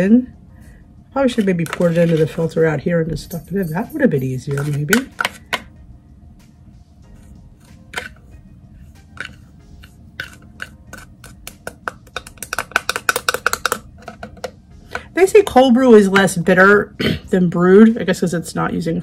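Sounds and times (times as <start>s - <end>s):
coffee grounds clicking into filter: 10.2s - 15.1s.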